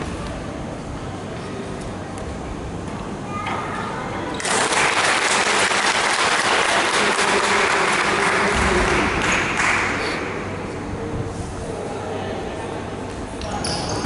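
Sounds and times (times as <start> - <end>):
spectators clapping: 4.4 - 10.4.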